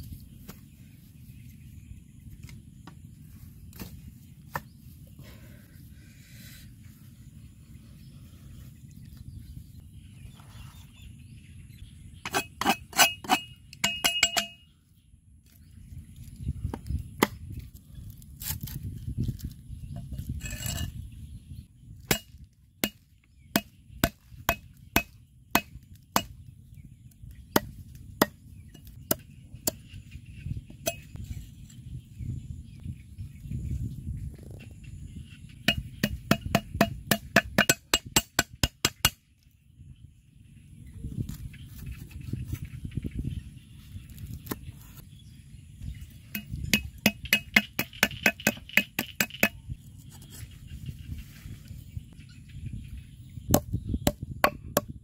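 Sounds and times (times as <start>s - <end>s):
cleaver chopping on wooden block: 22.1s - 26.4s, 35.7s - 39.2s, 46.3s - 49.6s.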